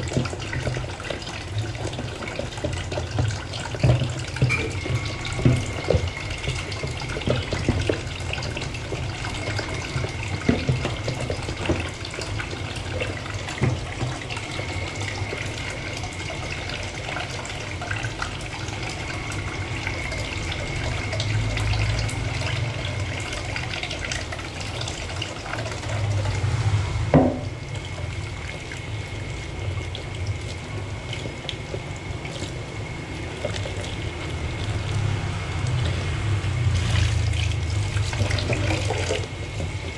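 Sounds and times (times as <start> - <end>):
tap running into steel sink: 1.8 - 12.3, 13.0 - 14.4, 27.1 - 27.6
loud clunk: 27.1 - 27.5.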